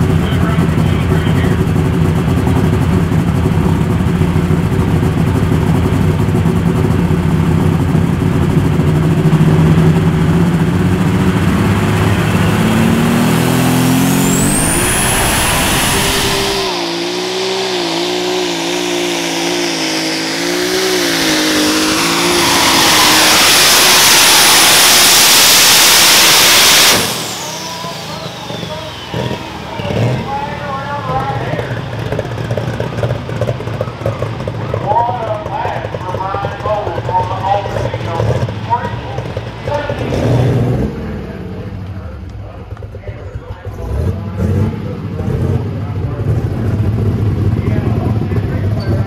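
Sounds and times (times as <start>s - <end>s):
tractor engine running hard: 0.0s - 49.0s
high rising whistle: 12.9s - 17.6s, 21.4s - 30.2s.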